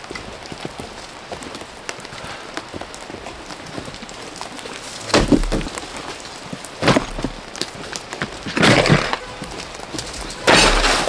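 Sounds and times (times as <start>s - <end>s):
footsteps on snowy ground: 0.0s - 11.0s
rustling clatter: 4.7s - 11.0s
gear knocking on ground: 4.8s - 11.0s
loud thud: 5.1s - 5.8s.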